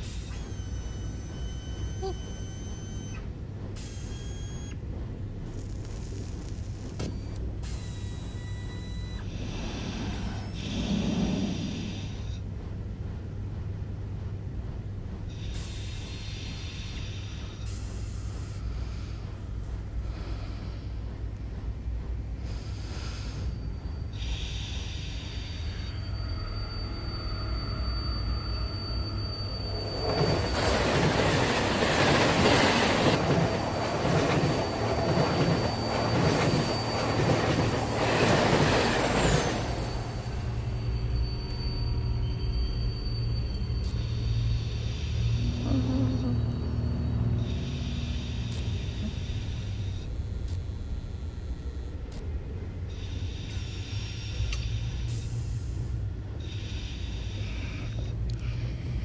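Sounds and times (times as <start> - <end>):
high wheel squeal: 0.0 - 4.8, 23.3 - 50.2, 56.4 - 58.7
subway train rushing past: 8.8 - 15.8, 17.9 - 50.0
low ambient hum: 24.8 - 59.0.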